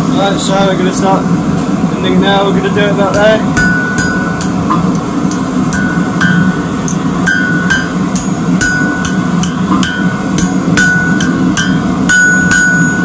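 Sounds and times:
hammer striking metal on anvil: 3.1 - 13.0.

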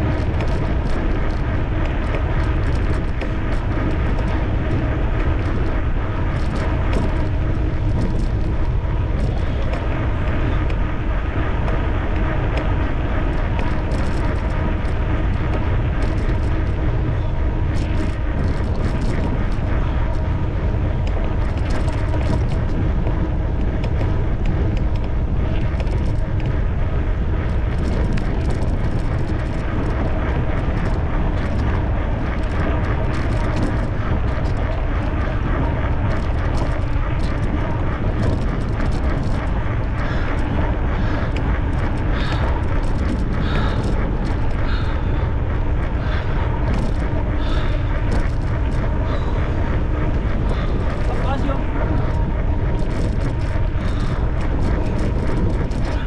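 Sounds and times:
electric bicycle running: 0.0 - 56.0
wind on microphone: 0.0 - 56.0.

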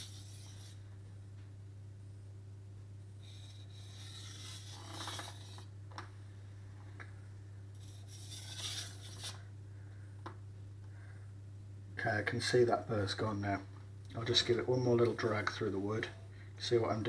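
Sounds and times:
knife scraping on whetstone: 0.0 - 0.8, 3.3 - 5.6, 7.8 - 9.4.

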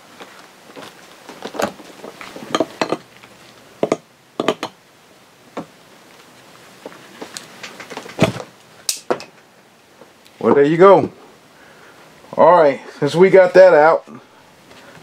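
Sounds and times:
metal tool clinking and scraping: 2.4 - 3.1, 3.8 - 4.8.

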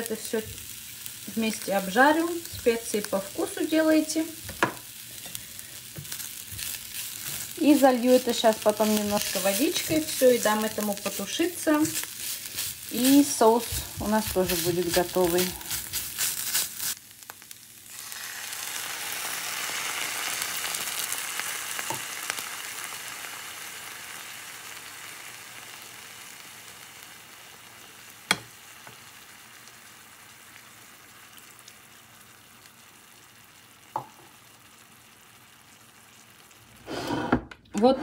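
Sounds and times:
vegetables sizzling in a frying pan: 0.0 - 37.3.

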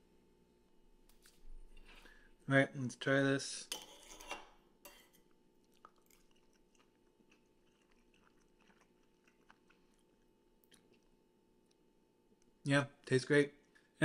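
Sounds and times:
faint chewing with crunches: 5.2 - 12.5.

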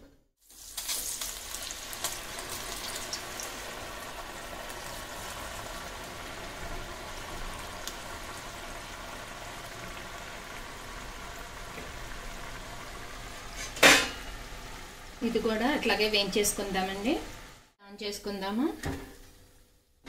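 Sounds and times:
dough deep-frying in oil: 0.4 - 18.2.

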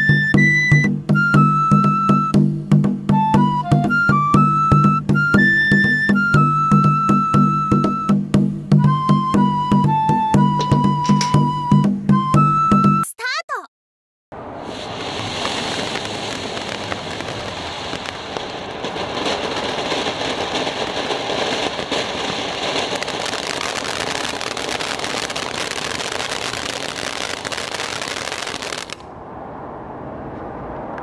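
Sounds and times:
firework fountain hissing and crackling: 14.4 - 29.1.

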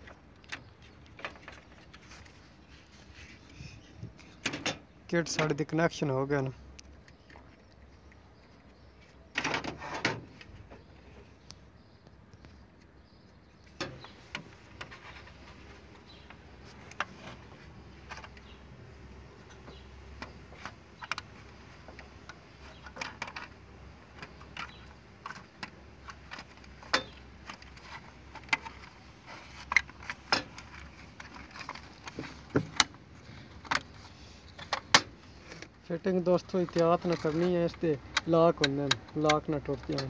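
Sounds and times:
plastic clicks and rattles: 19.5 - 33.0.

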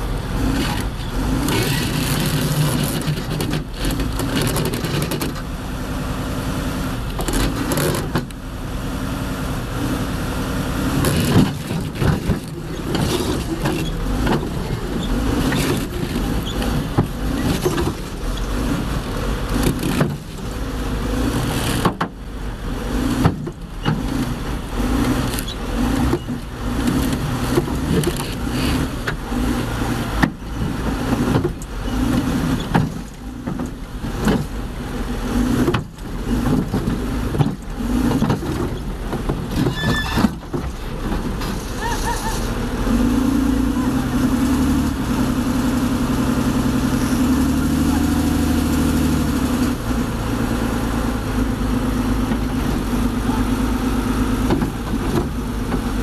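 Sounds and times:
bulldozer diesel engine under load: 0.0 - 56.0.

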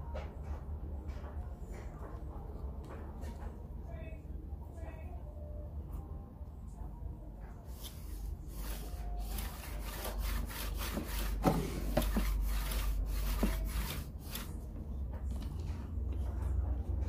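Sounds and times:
hand tool rubbing on wood: 7.7 - 14.6.

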